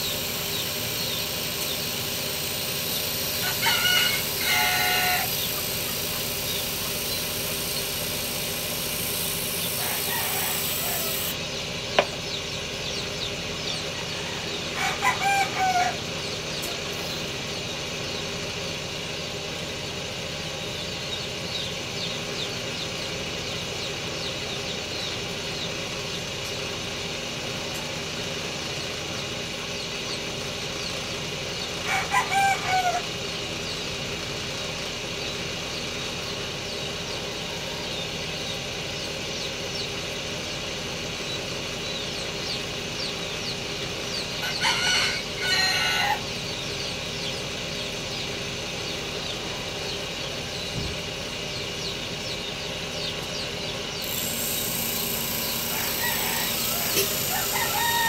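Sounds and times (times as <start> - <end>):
rooster crowing: 0.0 - 11.4, 13.9 - 16.1, 31.8 - 33.1, 44.4 - 46.4, 54.1 - 58.0
steady background hum: 0.0 - 58.0.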